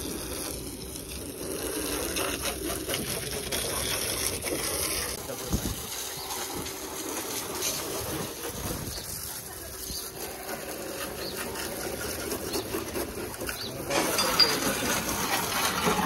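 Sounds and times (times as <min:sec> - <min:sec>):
pump motor hum: 0:00.0 - 0:16.0
water spray hissing: 0:00.0 - 0:16.0.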